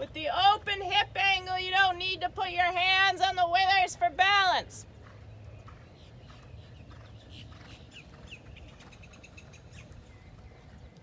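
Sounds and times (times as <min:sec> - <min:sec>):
birds chirping and trilling: 0:04.8 - 0:11.0.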